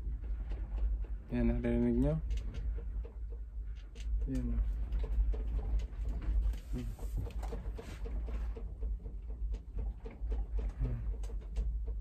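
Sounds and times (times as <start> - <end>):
low rumble: 0.0 - 12.0
room creaking: 6.4 - 8.2.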